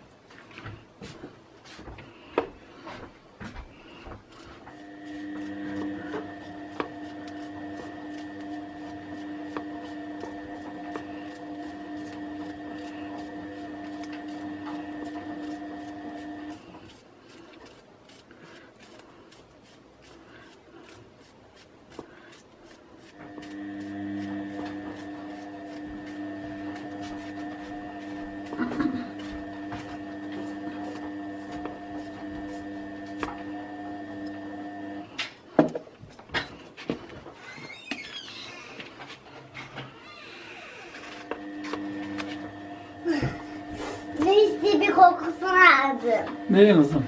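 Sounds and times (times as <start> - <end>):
peeler scraping vegetable skin: 3.8 - 34.4, 40.4 - 45.0
kitchen appliance humming: 3.8 - 35.5, 39.8 - 47.0.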